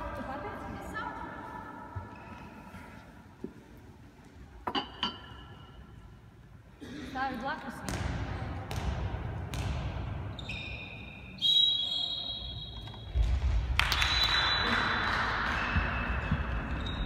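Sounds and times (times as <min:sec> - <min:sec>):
shoes squeaking on floor: 0:01.9 - 0:02.8, 0:10.3 - 0:13.1, 0:15.6 - 0:17.0.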